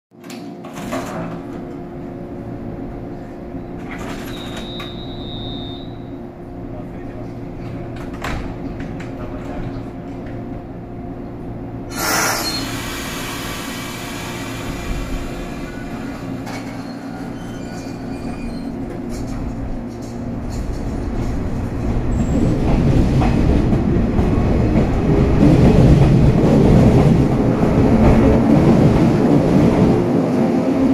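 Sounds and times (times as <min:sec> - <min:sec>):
electric train equipment hum: 0:00.2 - 0:30.9
electric train pulling out: 0:11.9 - 0:18.6.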